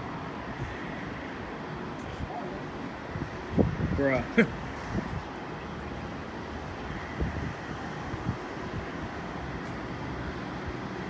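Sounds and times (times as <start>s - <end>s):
distant airport noise: 0.0s - 11.0s
wind buffeting microphone: 0.4s - 10.0s.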